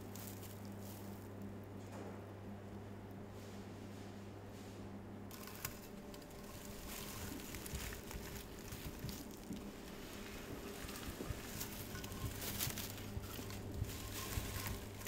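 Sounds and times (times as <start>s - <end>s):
straw bedding rustling: 0.0s - 1.3s, 5.3s - 15.0s
low steady hum: 0.0s - 15.0s.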